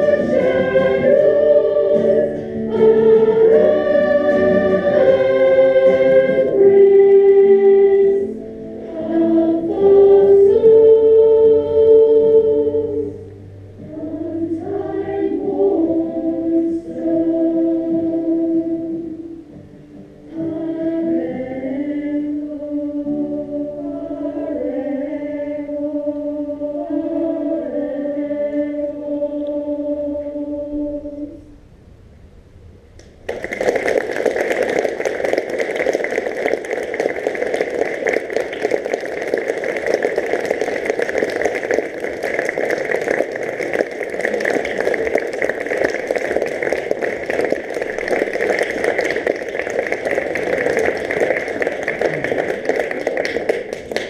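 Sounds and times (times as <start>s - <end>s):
choir singing chord: 0.0s - 19.2s, 20.3s - 31.4s
audience applause: 33.2s - 54.0s.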